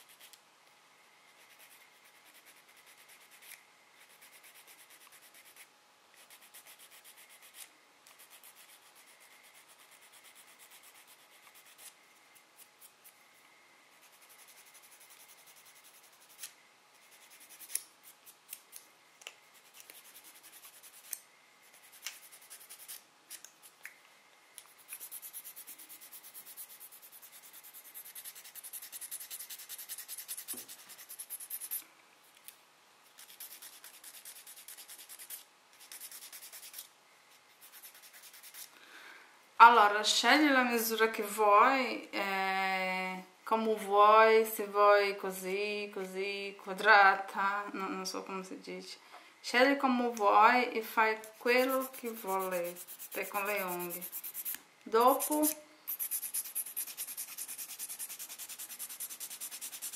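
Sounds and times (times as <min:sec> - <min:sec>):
nail file rasping: 0:01.3 - 0:12.0, 0:14.0 - 0:23.5, 0:24.6 - 0:31.8, 0:33.2 - 0:38.7, 0:51.2 - 0:59.9.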